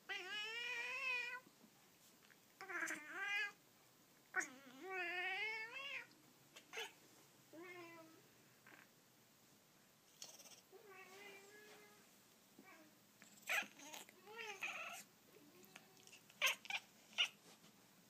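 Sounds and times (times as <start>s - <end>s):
cat meowing: 13.5s - 15.1s, 15.7s - 17.4s.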